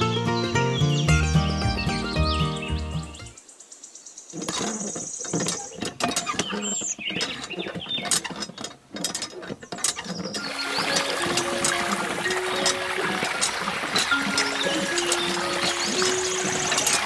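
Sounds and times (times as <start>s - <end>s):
small parts clicking and rattling: 4.4s - 12.8s.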